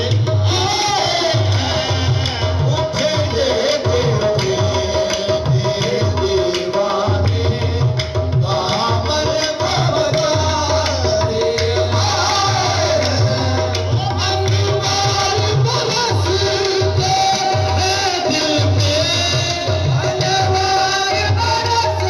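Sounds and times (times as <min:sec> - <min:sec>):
hand drums beating: 0:00.0 - 0:22.0
man singing into microphone: 0:00.0 - 0:22.0.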